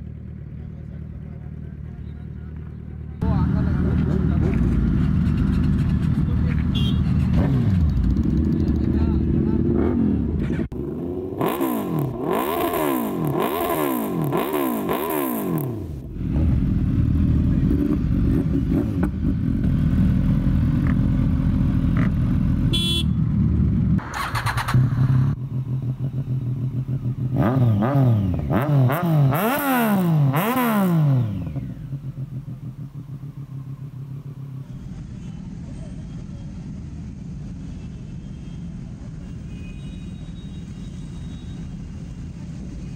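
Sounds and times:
motorcycles idling: 0.0s - 15.0s, 15.6s - 28.6s, 31.1s - 37.4s
motorcycle engine revving: 3.2s - 35.6s.

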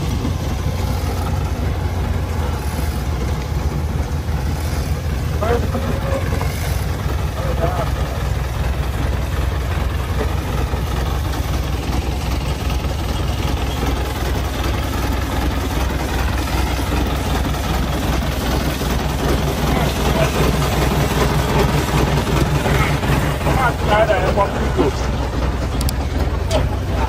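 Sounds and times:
heavy machinery engine droning: 0.0s - 27.0s.

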